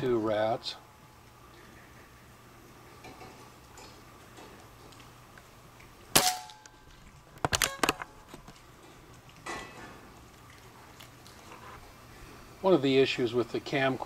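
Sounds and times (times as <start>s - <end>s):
air gun shot: 6.1s - 6.6s.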